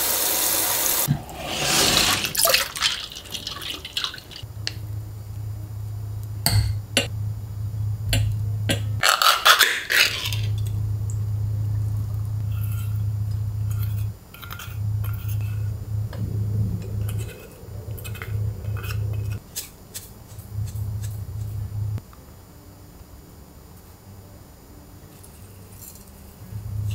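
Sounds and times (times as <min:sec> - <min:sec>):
low hum: 0:04.4 - 0:23.3, 0:25.4 - 0:26.9
spatula scraping metal bowl: 0:12.4 - 0:15.7.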